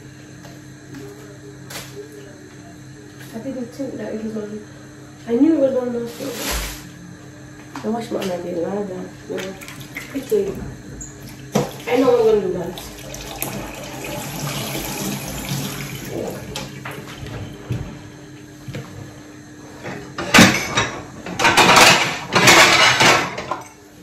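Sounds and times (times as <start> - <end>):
tap water running into sink: 12.6 - 17.0.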